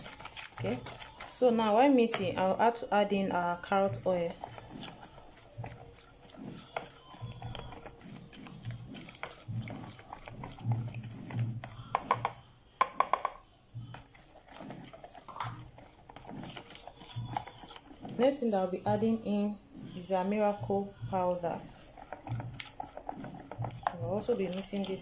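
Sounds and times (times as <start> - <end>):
spoon stirring thick paste: 0.0 - 25.0.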